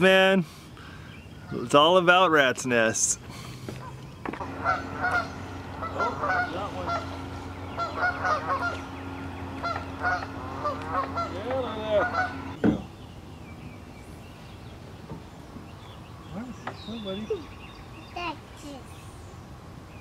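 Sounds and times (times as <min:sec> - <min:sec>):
steady low hum: 0:02.8 - 0:20.0
geese honking: 0:03.8 - 0:12.6.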